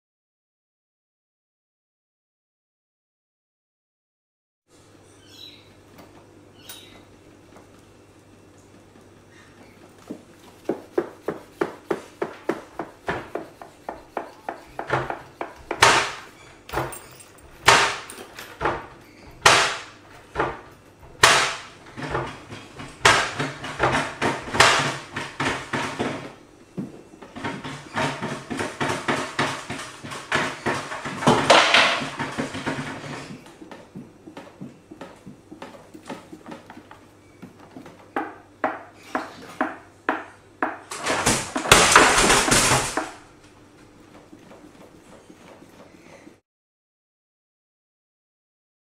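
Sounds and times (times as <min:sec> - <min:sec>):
sharp knocks: 0:10.7 - 0:17.0, 0:17.6 - 0:26.3.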